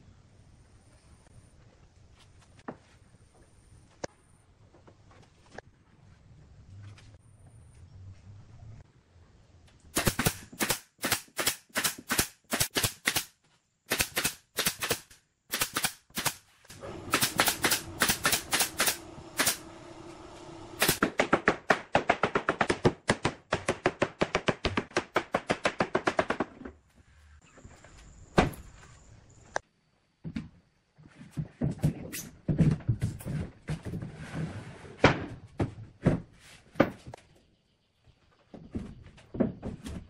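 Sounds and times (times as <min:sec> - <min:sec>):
nail gun shots into wood: 0:10.0 - 0:16.4, 0:17.1 - 0:19.6, 0:20.8 - 0:26.5
low steady hum: 0:16.7 - 0:21.0.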